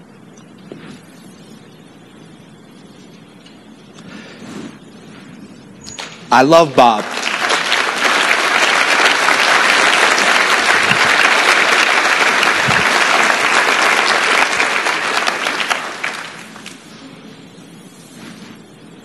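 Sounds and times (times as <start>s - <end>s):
audience applauding: 6.7s - 17.1s.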